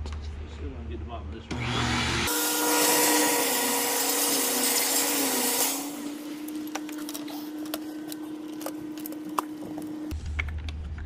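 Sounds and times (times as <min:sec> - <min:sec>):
vacuum cleaner motor hum: 0:01.5 - 0:10.1.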